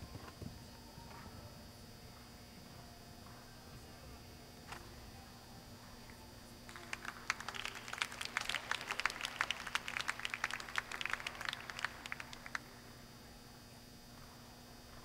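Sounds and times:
spectators applauding: 0:06.7 - 0:12.9.

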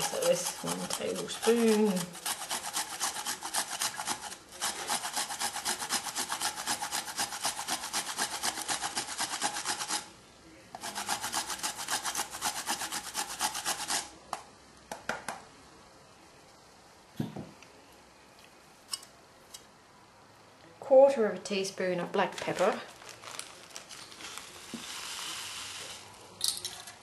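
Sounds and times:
ginger rasping on metal grater: 0:00.0 - 0:10.1, 0:10.8 - 0:14.1.

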